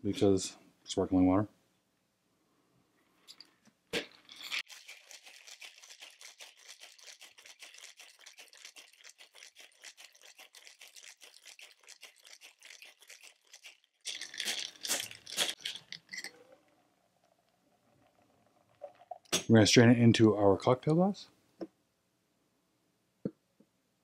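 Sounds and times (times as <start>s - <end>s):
ice rattling in cocktail shaker: 4.1s - 19.3s.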